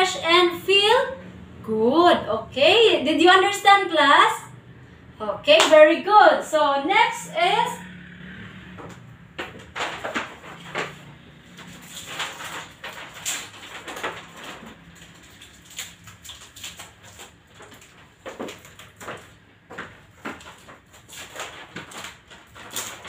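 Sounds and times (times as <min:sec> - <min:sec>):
paper rustling and crackling: 0:09.4 - 0:23.0.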